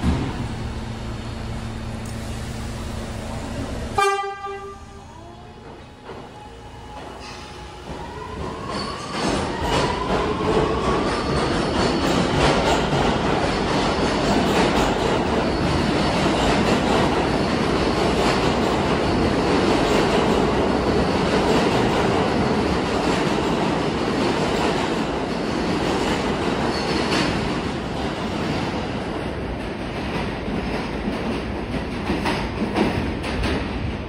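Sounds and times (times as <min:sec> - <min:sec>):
subway train rumbling: 0:00.0 - 0:34.0.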